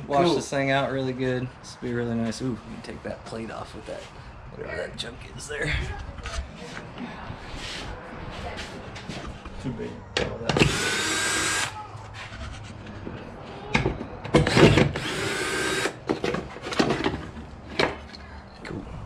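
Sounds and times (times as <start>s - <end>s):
cordless drill spinning: 10.6s - 11.7s, 14.5s - 16.0s.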